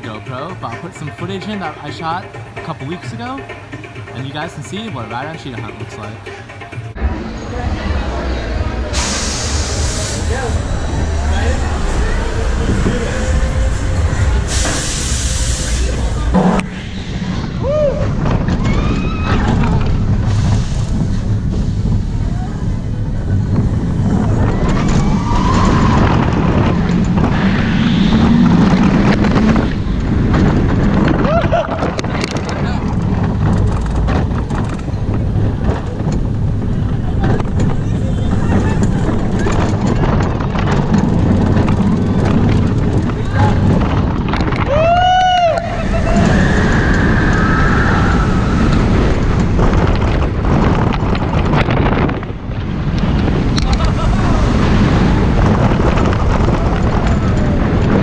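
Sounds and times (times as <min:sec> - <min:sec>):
roller coaster rumbling on track: 0:00.0 - 0:58.0
wind buffeting microphone: 0:00.0 - 0:58.0
high squeal: 0:07.1 - 0:19.6, 0:24.4 - 0:26.8, 0:45.2 - 0:49.6.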